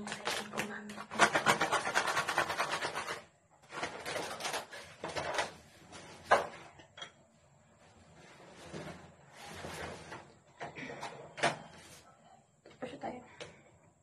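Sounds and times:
clattering and rustling: 0:03.7 - 0:07.2, 0:07.8 - 0:12.0.

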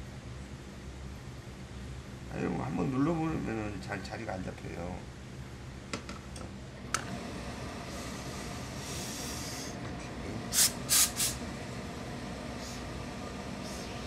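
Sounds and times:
steam iron hissing: 0:07.8 - 0:09.8, 0:10.5 - 0:11.4, 0:12.5 - 0:13.0.

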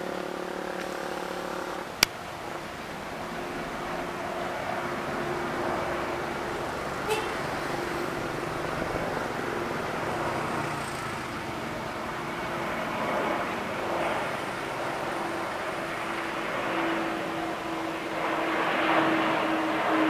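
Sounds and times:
diesel locomotive engine drone: 0:00.0 - 0:20.0.

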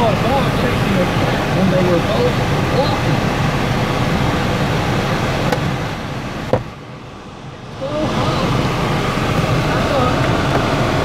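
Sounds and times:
car climate blower rushing: 0:00.0 - 0:11.0.

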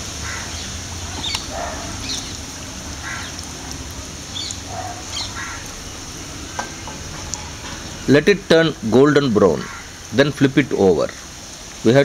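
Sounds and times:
food deep-frying in oil: 0:00.0 - 0:12.0
bird calling: 0:00.2 - 0:08.1, 0:09.5 - 0:10.1.

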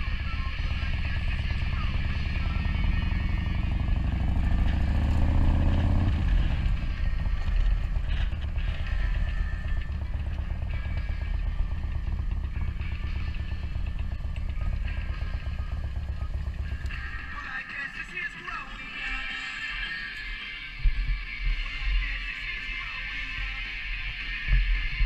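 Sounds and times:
motorcycle engine revving and rumbling: 0:00.0 - 0:17.8
faint music from speakers: 0:00.0 - 0:25.0.

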